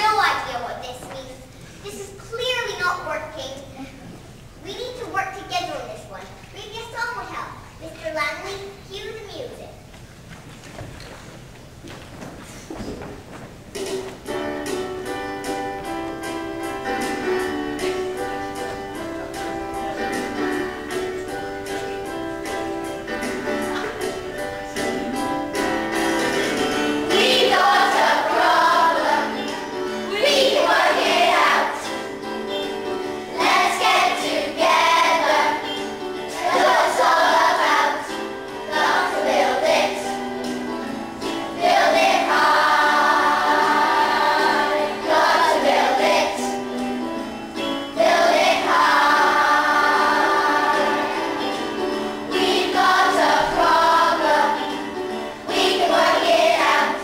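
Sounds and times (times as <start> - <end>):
instrumental accompaniment: 12.8 - 57.0
children singing: 23.4 - 40.6, 41.2 - 46.8, 47.8 - 57.0.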